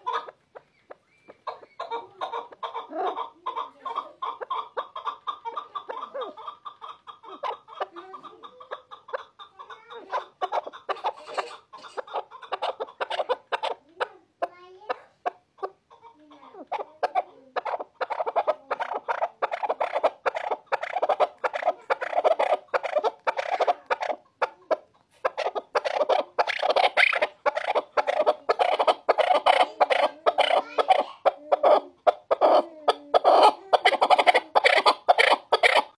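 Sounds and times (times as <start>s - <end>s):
partridge calling: 16.7s - 24.2s, 25.2s - 35.9s.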